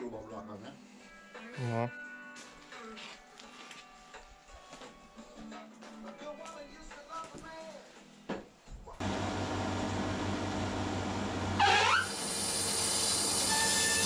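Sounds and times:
band sawmill whirring: 0:09.0 - 0:14.0.

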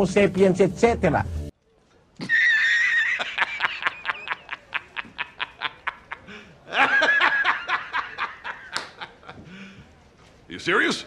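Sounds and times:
man laughing hard: 0:02.2 - 0:09.4.

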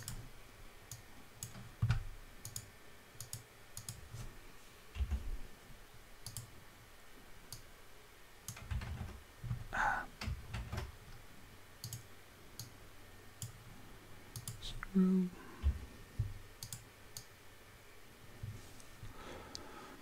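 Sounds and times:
keyboard keystrokes: 0:06.2 - 0:06.5, 0:11.8 - 0:12.7, 0:16.6 - 0:17.3
mouse clicks: 0:06.2 - 0:06.5, 0:11.8 - 0:12.8, 0:16.6 - 0:17.3
soft low thumps: 0:15.6 - 0:16.4.

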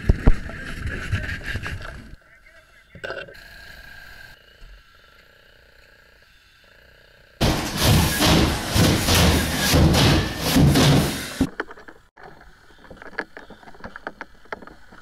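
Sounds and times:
drywall crashing and scraping: 0:07.4 - 0:11.5.

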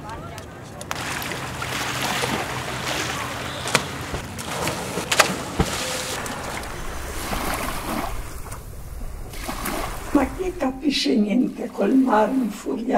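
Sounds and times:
water splashing and sloshing: 0:00.2 - 0:12.9
sharp slaps of water: 0:00.8 - 0:06.3.

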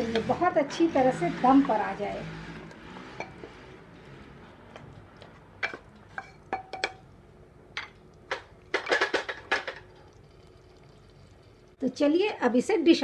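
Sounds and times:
wooden spoon knocking on metal pot: 0:05.6 - 0:07.1.

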